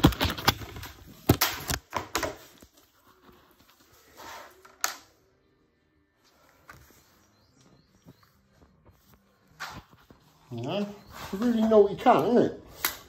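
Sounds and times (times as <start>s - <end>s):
sharp clicks and knocks: 0.0s - 2.4s.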